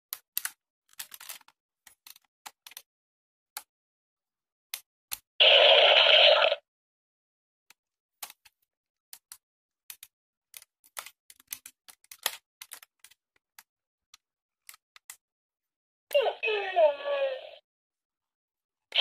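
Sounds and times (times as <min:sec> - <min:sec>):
plastic toy parts clicking: 0:00.1 - 0:02.8, 0:09.1 - 0:13.7.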